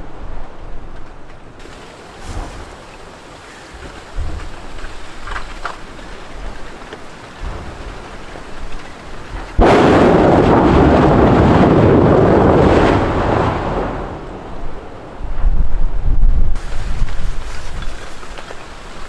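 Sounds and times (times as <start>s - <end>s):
steady wind noise: 0.0s - 19.0s
volcano eruption blast rumbling: 1.6s - 19.0s.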